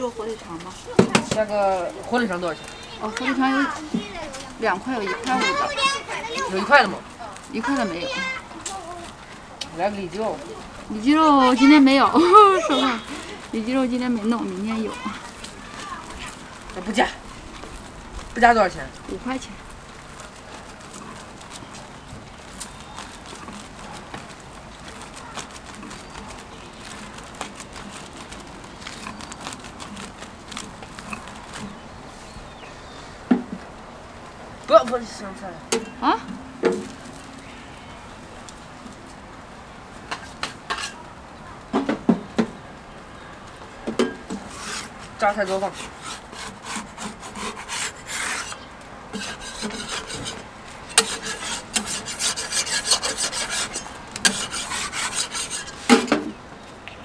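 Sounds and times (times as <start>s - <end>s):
low crackle of cooking: 0.0s - 41.7s
spreader working egg on griddle: 43.9s - 56.4s.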